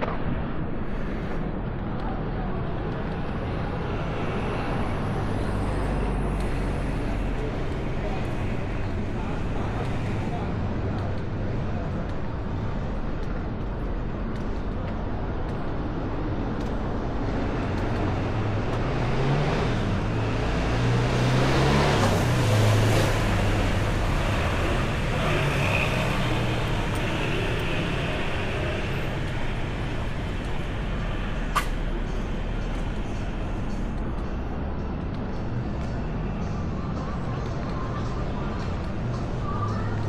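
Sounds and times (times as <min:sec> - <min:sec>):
street traffic noise: 0:00.0 - 0:40.0.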